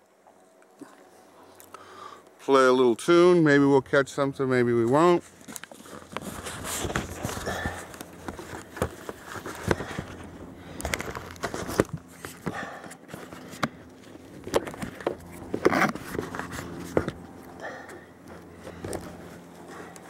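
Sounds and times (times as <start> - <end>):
camera handling knocks and scrapes: 14.4 - 17.2.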